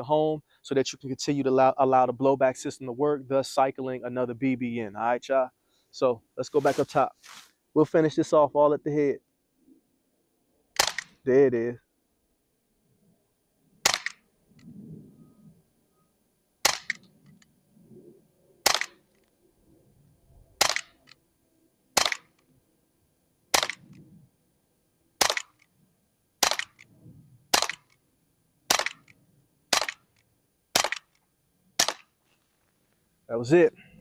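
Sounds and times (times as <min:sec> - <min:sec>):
air pistol shots cracking: 0:10.8 - 0:11.2, 0:13.8 - 0:14.2, 0:16.6 - 0:17.0, 0:18.6 - 0:19.1, 0:20.6 - 0:21.1, 0:22.0 - 0:22.4, 0:23.5 - 0:24.0, 0:25.2 - 0:25.6, 0:26.4 - 0:26.9, 0:27.5 - 0:27.9, 0:28.7 - 0:29.1, 0:29.7 - 0:31.2, 0:31.8 - 0:32.1.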